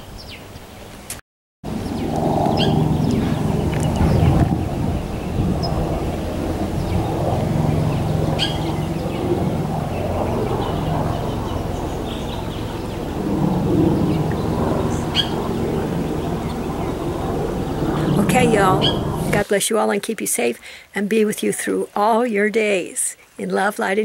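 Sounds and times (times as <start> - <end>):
airplane passing overhead: 1.7 - 19.5
high bird chirps: 1.8 - 4.4, 6.8 - 9.3, 13.8 - 19.2.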